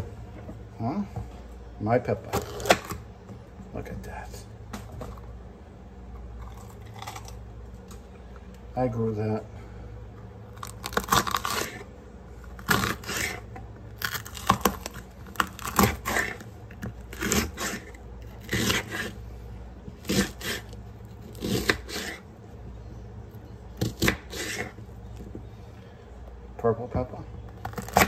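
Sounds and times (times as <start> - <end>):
knife slicing pepper: 10.8 - 11.9, 12.6 - 19.2, 20.0 - 22.2, 23.8 - 24.8.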